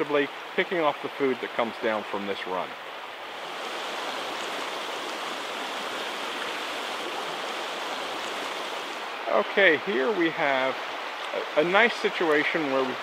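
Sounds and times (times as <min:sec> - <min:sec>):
creek flowing over gravel: 0:00.0 - 0:13.0.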